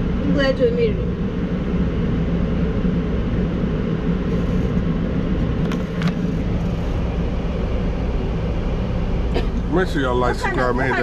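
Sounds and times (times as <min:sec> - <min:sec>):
diesel truck engine idling: 0:00.0 - 0:11.0.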